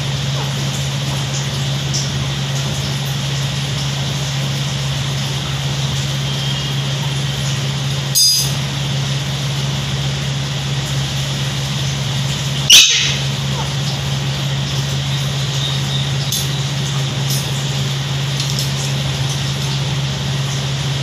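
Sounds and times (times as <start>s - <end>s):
low mechanical hum: 0.0s - 21.0s
parakeet squawk: 12.7s - 13.4s.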